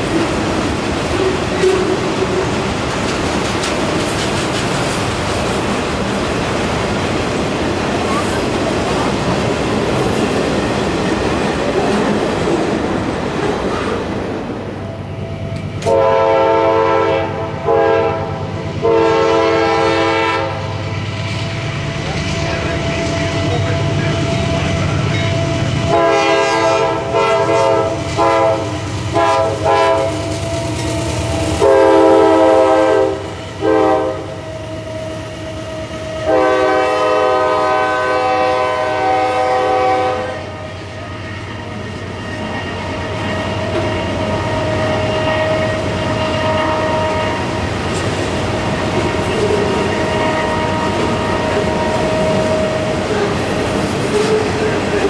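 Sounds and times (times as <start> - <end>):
freight cars rumbling and clattering: 0.0 - 14.8, 47.4 - 55.0
diesel locomotives running: 0.0 - 55.0
locomotive horn blasts: 15.8 - 20.8, 25.4 - 34.9, 35.9 - 40.7, 43.3 - 47.5, 49.9 - 52.9.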